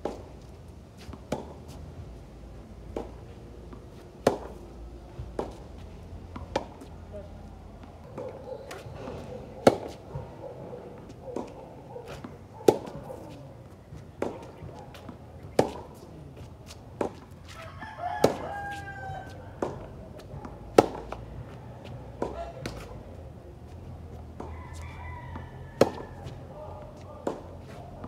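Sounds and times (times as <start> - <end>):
tennis ball bouncing on hard court: 1.0 - 1.8, 2.8 - 7.0, 7.8 - 27.8
tennis ball struck by rackets: 1.0 - 1.8, 2.8 - 7.0, 7.8 - 17.6, 18.2 - 27.8
rooster crowing: 17.6 - 19.4, 24.4 - 26.4.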